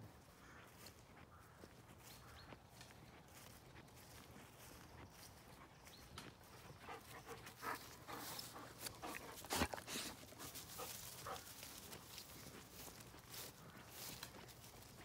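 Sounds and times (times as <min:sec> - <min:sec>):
dog sounds: 0:06.4 - 0:13.0
dog scuffling on grass: 0:06.8 - 0:15.0.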